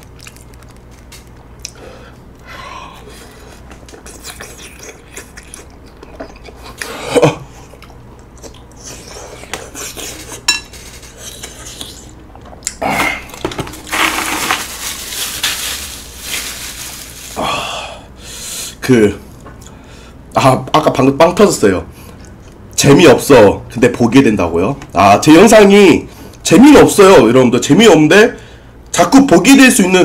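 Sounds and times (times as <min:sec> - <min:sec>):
chewing: 0:00.0 - 0:01.8, 0:03.4 - 0:12.8
paper napkin rustling: 0:13.7 - 0:17.4.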